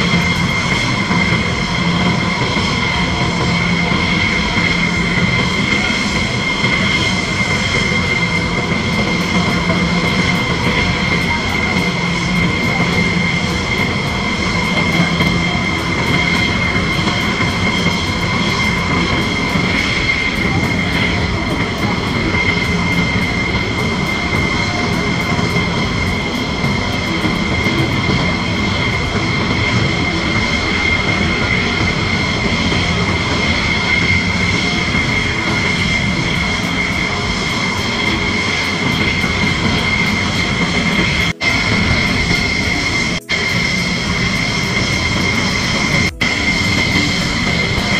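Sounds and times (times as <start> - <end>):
jet engines idling whine: 0.0 - 47.9.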